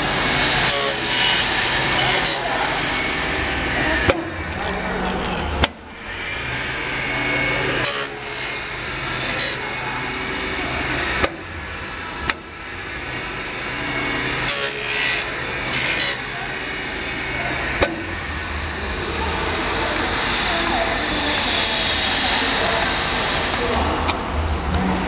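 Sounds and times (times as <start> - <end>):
metal strip scraping: 0.7 - 2.6, 7.8 - 9.8, 14.5 - 16.4.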